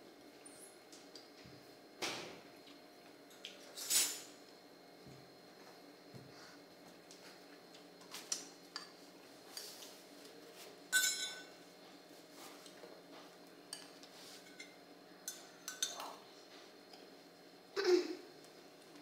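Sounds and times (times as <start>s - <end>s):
metal spoon clinking on plate: 10.9s - 11.5s, 13.7s - 16.1s.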